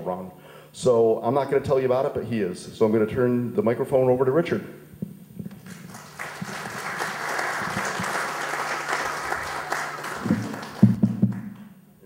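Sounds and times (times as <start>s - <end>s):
audience applauding: 5.6s - 11.7s.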